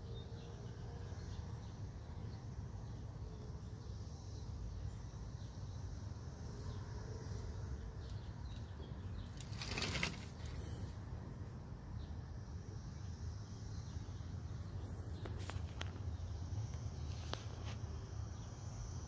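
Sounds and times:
screen door scraping rattle: 9.2s - 10.9s.

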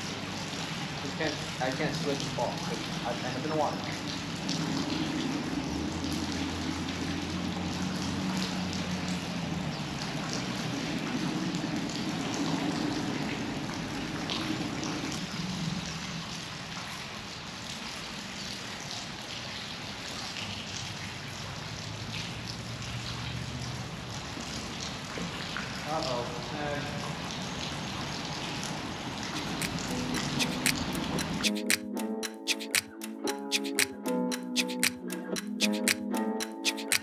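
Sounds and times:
river water rushing: 28.8s - 31.8s.

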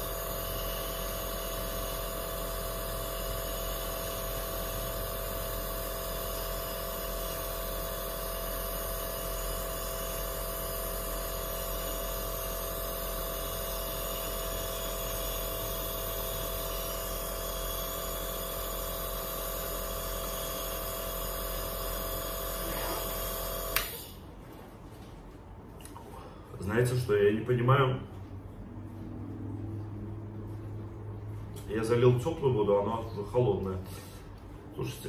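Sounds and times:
nebulizer pump buzzing hum: 0.0s - 24.6s.

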